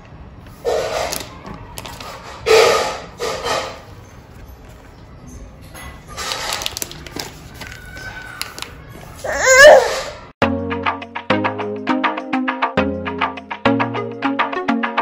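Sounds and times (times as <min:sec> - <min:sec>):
baby squealing: 0:09.2 - 0:10.3
background music with steady beat: 0:10.4 - 0:15.0.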